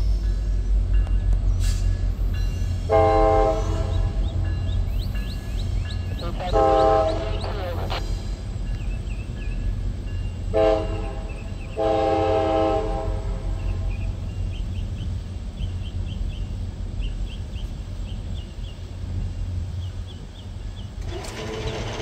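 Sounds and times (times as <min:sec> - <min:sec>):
diesel locomotive rumble: 0:00.0 - 0:22.0
train horn blasts: 0:02.8 - 0:04.3, 0:06.1 - 0:08.2, 0:10.5 - 0:13.9.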